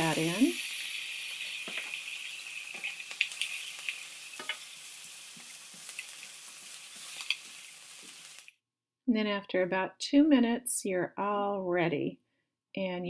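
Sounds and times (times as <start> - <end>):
vegetables sizzling in oil: 0.0 - 8.5.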